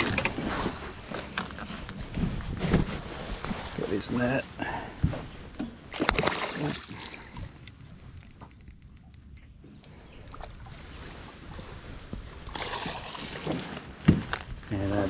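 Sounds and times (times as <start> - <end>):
water sloshing: 5.5 - 14.5
knocks and splashes: 5.6 - 7.5, 12.4 - 14.5.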